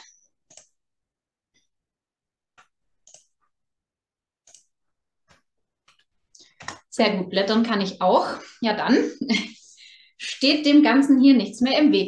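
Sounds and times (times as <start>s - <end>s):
computer mouse clicks: 0.0s - 0.8s, 2.6s - 3.4s, 4.4s - 4.7s.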